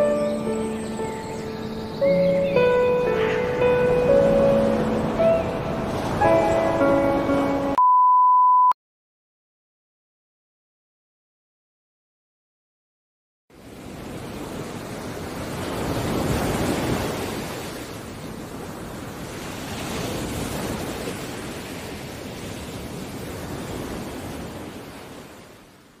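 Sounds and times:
ocean waves washing in: 0.0 - 7.8, 13.5 - 26.0.

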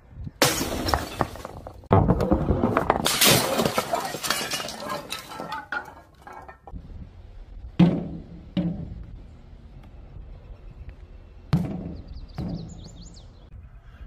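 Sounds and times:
glass bottle shattering: 0.4 - 1.6, 3.0 - 6.6
glass shards clinking: 3.1 - 6.7.

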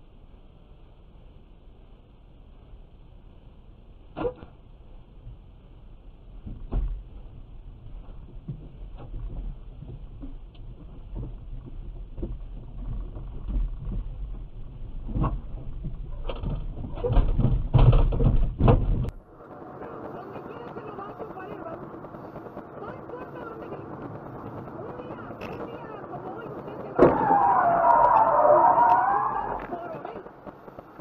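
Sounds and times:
low steady hum: 0.0 - 31.0
knocks and thumps against car: 15.1 - 19.1.

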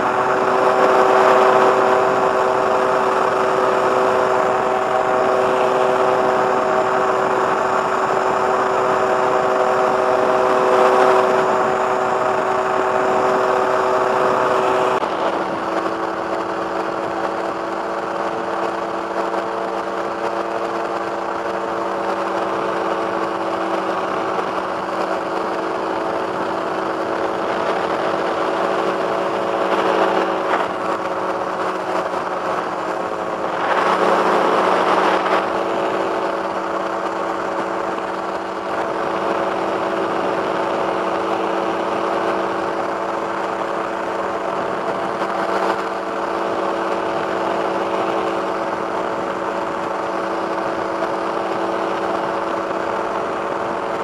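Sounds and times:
microlight engine droning: 0.0 - 54.0
rush of air: 27.2 - 46.8.

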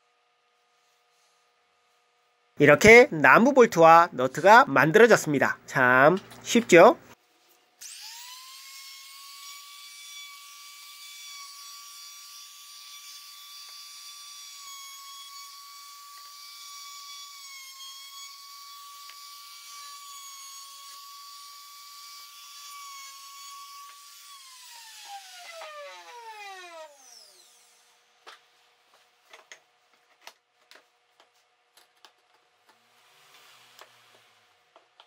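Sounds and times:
trim router motor whining: 7.8 - 27.9.

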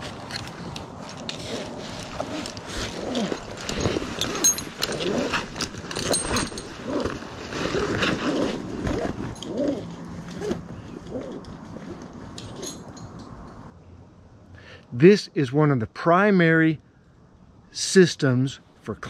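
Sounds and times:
climbing gear clicking and rattling: 0.0 - 13.6.

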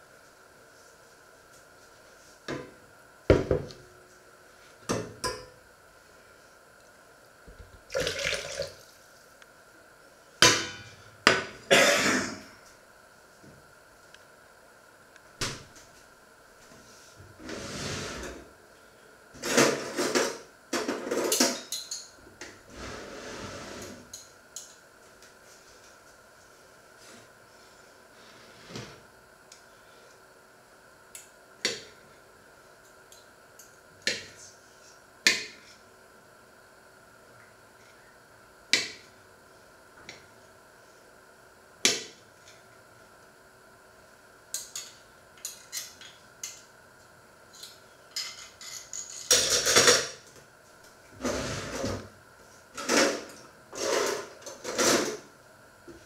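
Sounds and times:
liquid pouring: 7.8 - 9.0.

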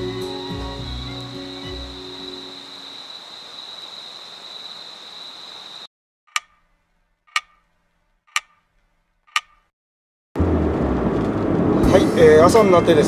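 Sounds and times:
clock ticks: 6.3 - 9.7.

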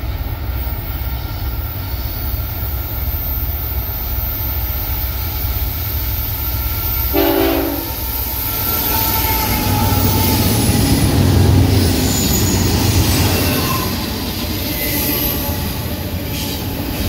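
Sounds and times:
diesel locomotive rumble: 0.0 - 17.0
train horn blast: 7.1 - 8.1
wheel squeal: 11.8 - 15.7.

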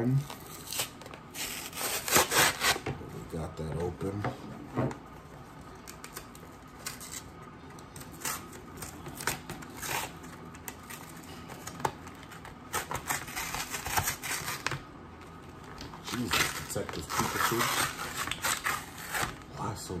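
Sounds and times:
packaging being torn: 0.2 - 2.8, 7.9 - 14.8, 16.0 - 19.4.

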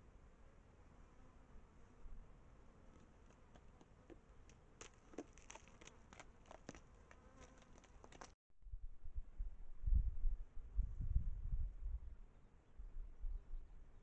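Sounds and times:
hooves clicking on rock: 2.9 - 8.4.

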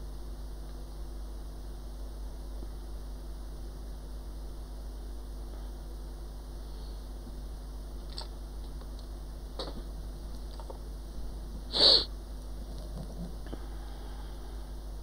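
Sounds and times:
low hum and hiss: 0.0 - 15.0
loud puff of noise: 11.7 - 12.1.

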